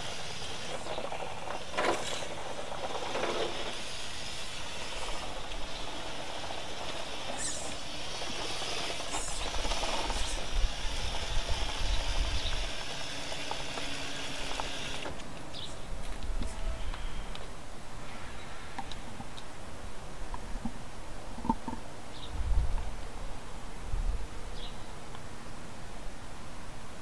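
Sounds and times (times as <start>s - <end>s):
toy car motor and gears whirring: 0.0s - 15.2s.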